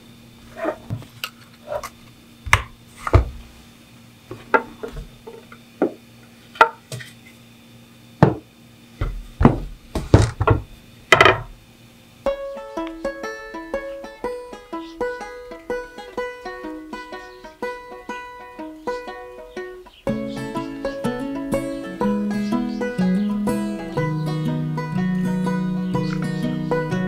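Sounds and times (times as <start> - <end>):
plucked string music: 12.3 - 27.0.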